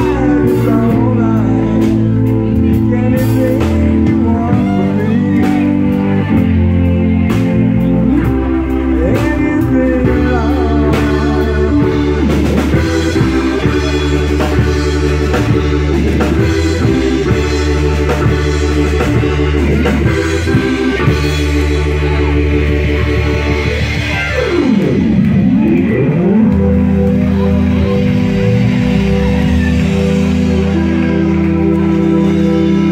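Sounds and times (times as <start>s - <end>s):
bass line: 0.0s - 32.9s
drum kit: 0.0s - 32.9s
electric guitar: 0.0s - 32.9s
keyboard chords: 0.0s - 32.9s.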